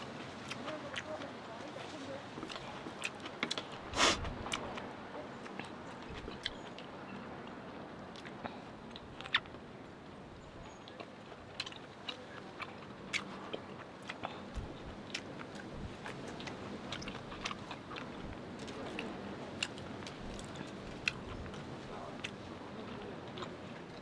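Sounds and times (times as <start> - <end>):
person chewing food: 2.4 - 4.8, 5.4 - 6.8, 10.9 - 24.0.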